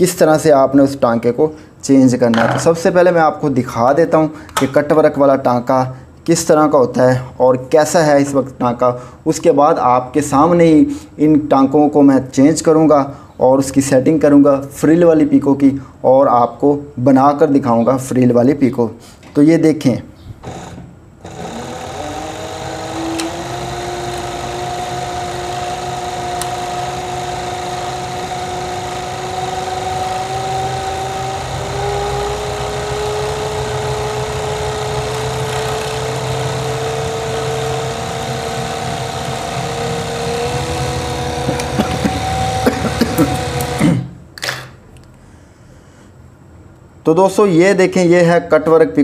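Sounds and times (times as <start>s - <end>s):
overlock sewing machine humming: 20.4s - 43.9s.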